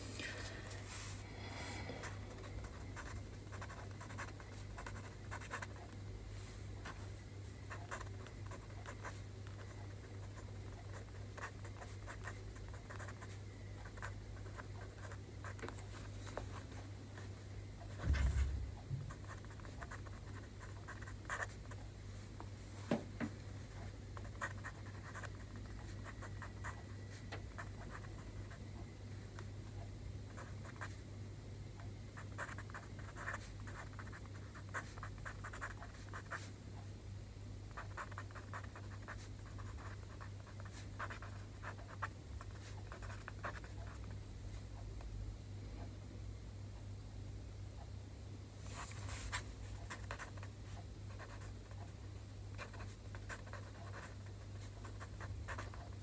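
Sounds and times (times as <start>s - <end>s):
steady low hum: 0.0s - 56.0s
pen scratching on paper: 2.3s - 5.9s, 19.1s - 21.6s, 24.2s - 26.8s, 32.2s - 36.5s, 37.8s - 44.0s, 51.1s - 51.8s, 52.5s - 56.0s
dull low thump: 18.0s - 19.1s.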